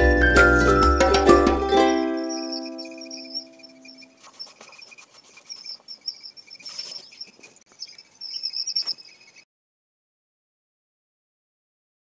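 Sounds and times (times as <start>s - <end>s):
high chirping: 0.0s - 9.4s.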